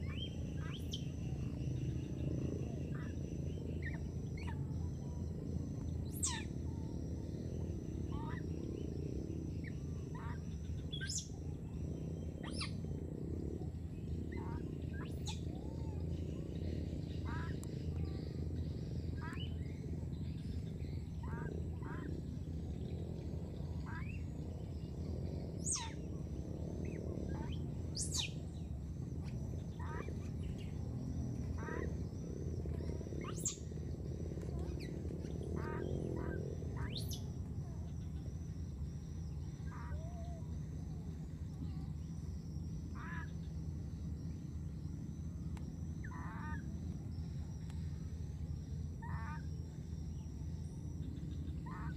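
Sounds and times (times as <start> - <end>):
high chirping animal calls: 6.0 - 7.0, 12.4 - 12.9, 25.5 - 26.2, 26.8 - 33.8, 34.4 - 38.3, 39.0 - 44.0, 46.0 - 47.2, 48.8 - 51.9.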